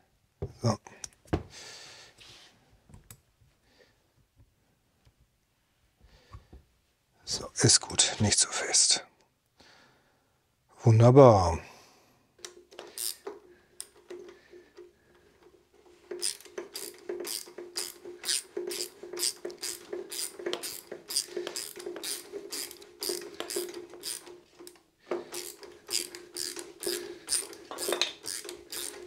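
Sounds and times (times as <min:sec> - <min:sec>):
socket ratchet clicking: 0:12.4 - 0:14.2, 0:16.1 - 0:29.0.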